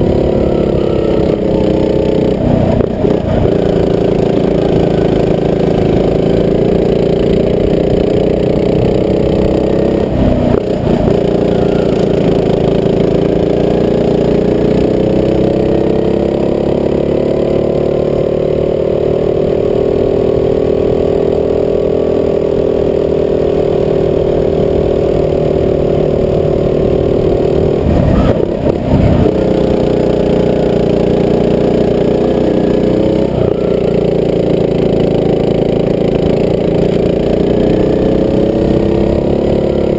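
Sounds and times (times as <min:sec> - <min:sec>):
go-kart engine running: 0:00.0 - 0:39.9.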